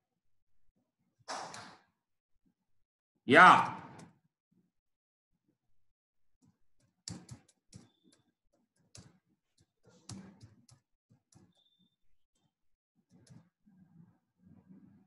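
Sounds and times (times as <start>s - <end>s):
typing on computer keyboard: 6.8s - 11.8s.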